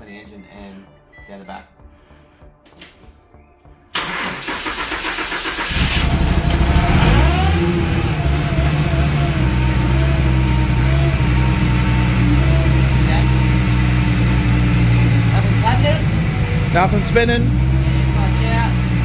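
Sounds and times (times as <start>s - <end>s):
car engine starting and idling: 3.9s - 19.0s.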